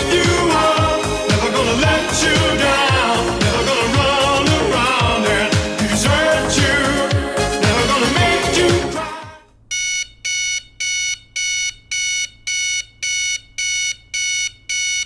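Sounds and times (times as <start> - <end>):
music: 0.0 - 9.4
alarm clock beeping: 9.7 - 15.0.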